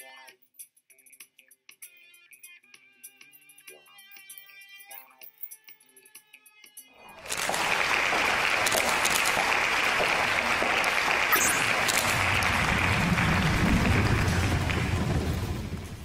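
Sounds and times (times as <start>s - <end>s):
audience applause: 7.0s - 16.0s
deep rumble: 11.6s - 16.0s.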